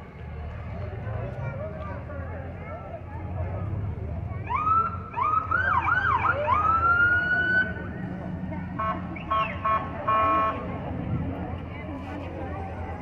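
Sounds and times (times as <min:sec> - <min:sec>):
police siren whooping and wailing: 0:04.5 - 0:07.8
short horn blasts: 0:08.8 - 0:10.7.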